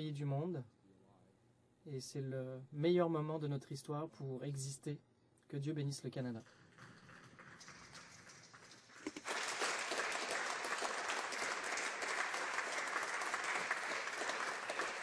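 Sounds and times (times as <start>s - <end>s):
crowd applauding: 6.4s - 15.0s.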